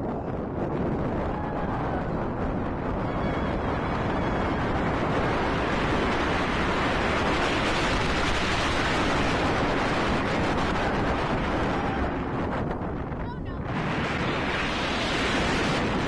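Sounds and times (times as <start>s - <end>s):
wind rushing over microphone: 0.0s - 16.0s
roller coaster train running on track: 0.1s - 12.2s.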